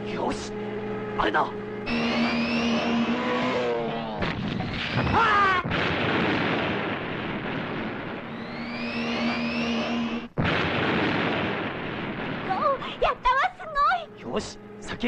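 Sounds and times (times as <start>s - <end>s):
cartoon car engine whine: 0.1s - 12.8s
falling whistle: 1.9s - 5.5s, 8.3s - 10.3s
explosion with long rumble: 4.2s - 13.0s.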